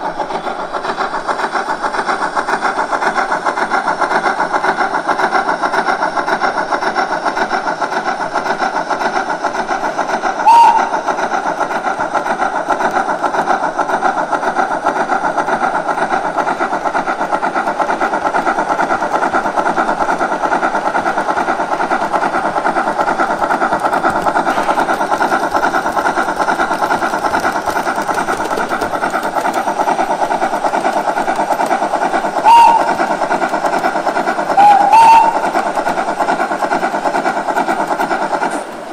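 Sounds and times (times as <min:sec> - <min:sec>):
steam locomotive chuffing: 0:00.0 - 0:38.9
short whistle toots: 0:10.4 - 0:11.0, 0:32.4 - 0:33.0, 0:34.6 - 0:35.4.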